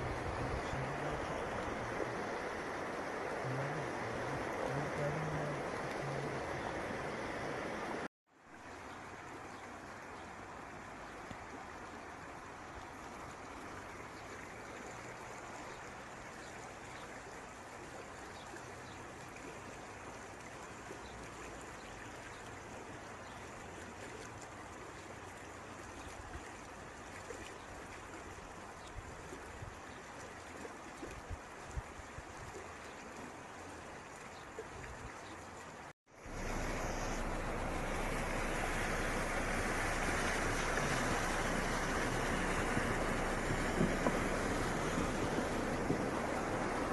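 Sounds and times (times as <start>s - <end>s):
floodwater rushing: 0.0s - 46.9s
low bumps: 36.3s - 46.9s.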